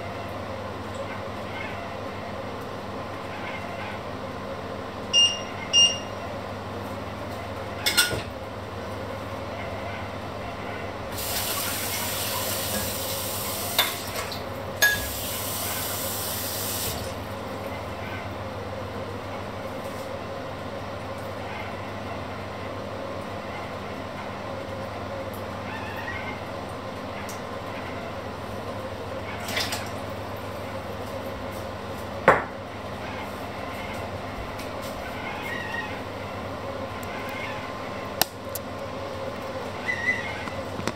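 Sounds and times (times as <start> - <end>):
kitchenware clinking: 14.8 - 15.2.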